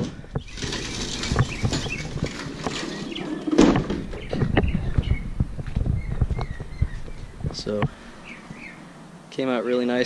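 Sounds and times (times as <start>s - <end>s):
footsteps: 0.0s - 8.0s
small birds chirping: 0.2s - 10.0s.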